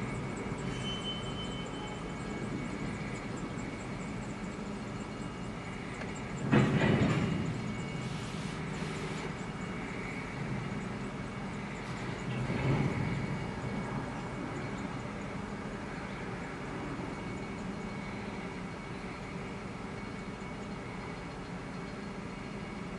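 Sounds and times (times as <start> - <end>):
train wheels rumbling on track: 0.0 - 22.9
train clank: 6.0 - 9.8, 11.8 - 14.2.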